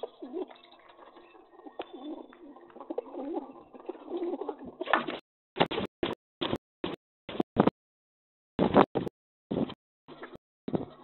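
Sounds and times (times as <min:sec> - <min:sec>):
pigeons cooing: 0:00.0 - 0:05.0.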